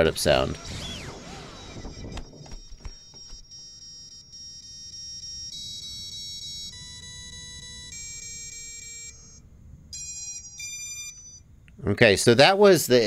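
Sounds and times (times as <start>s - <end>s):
electronic motor beep tones: 0.6s - 9.4s, 10.0s - 11.4s.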